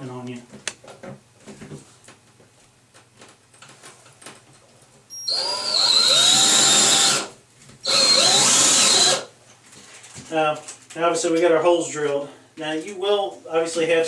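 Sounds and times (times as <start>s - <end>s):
cordless drill boring through tile: 5.1s - 9.3s.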